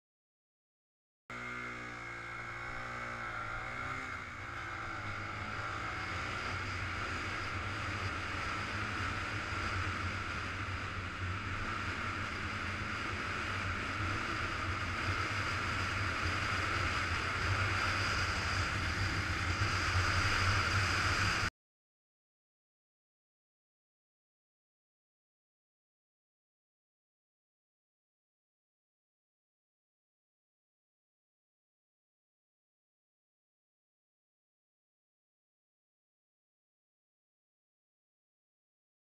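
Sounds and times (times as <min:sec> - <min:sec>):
motorcycle engine running: 0:01.3 - 0:21.5
wind rush on camera: 0:06.3 - 0:21.5.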